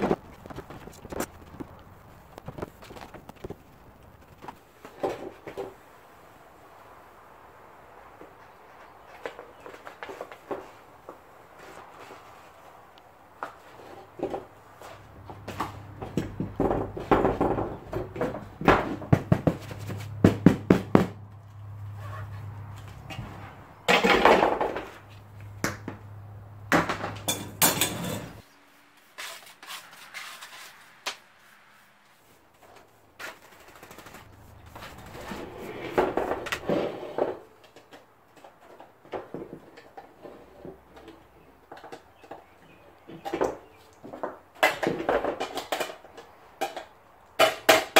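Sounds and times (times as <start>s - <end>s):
brittle vinyl and plastic crackling: 0.0s - 5.8s
knocks and clunks of steel pieces: 26.7s - 28.4s.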